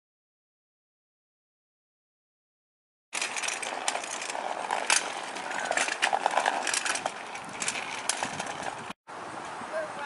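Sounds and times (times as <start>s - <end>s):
bicycle rattling on concrete: 3.2s - 9.0s.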